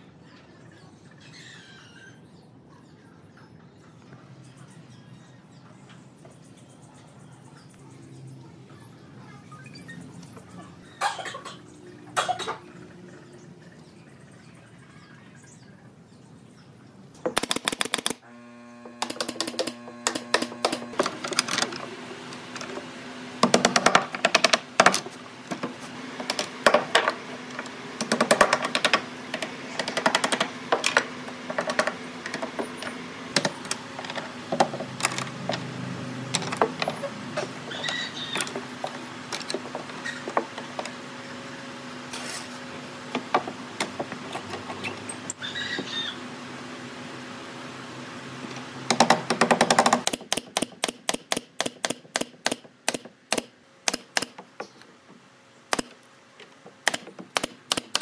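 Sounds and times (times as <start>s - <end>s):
steady low hum: 18.2s - 45.4s.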